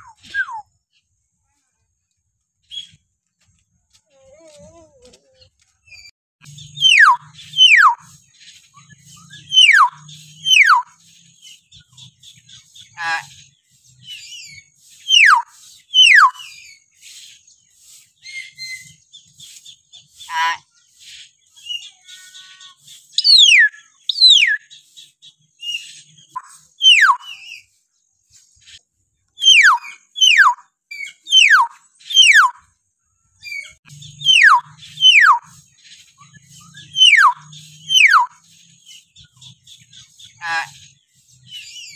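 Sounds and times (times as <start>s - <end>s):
bird whistling: 0.0s - 0.7s, 6.0s - 8.2s, 8.9s - 11.0s, 14.1s - 16.8s, 21.8s - 24.8s, 25.6s - 27.7s, 29.4s - 32.6s, 33.5s - 35.6s, 36.3s - 39.6s
bird trilled rattling calls: 6.0s - 27.7s, 33.5s - 41.9s.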